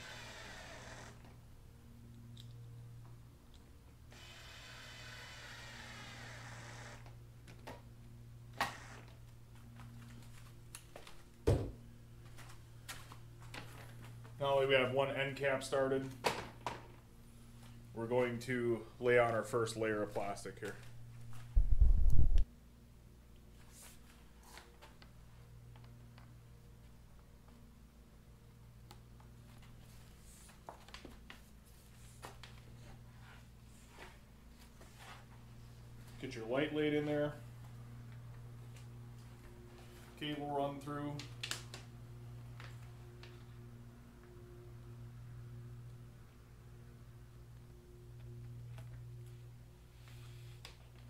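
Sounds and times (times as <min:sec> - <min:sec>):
cordless drill driving screw: 0:00.0 - 0:01.3, 0:04.1 - 0:07.1, 0:08.6 - 0:09.2
steady low hum: 0:00.0 - 0:51.0.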